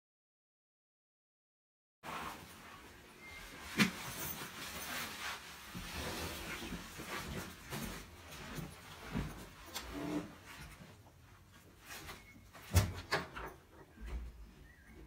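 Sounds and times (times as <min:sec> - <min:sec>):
backpack fabric rustling: 0:02.1 - 0:09.7.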